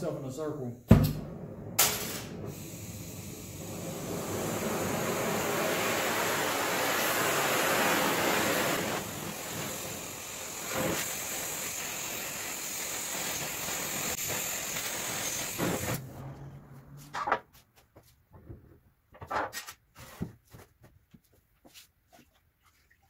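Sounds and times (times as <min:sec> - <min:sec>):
torch flame hissing: 0:01.1 - 0:16.1.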